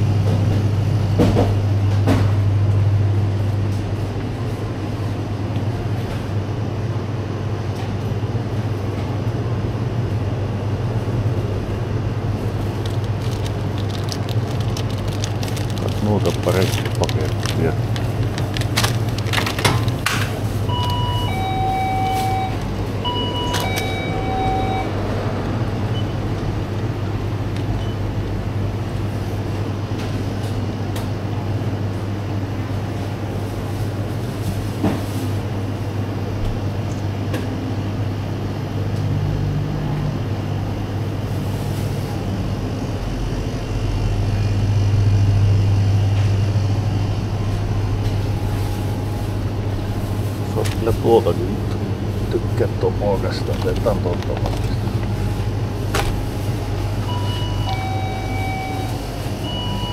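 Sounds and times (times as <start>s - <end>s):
steady low hum: 0.0s - 59.9s
ding-dong door chime: 21.1s - 24.9s.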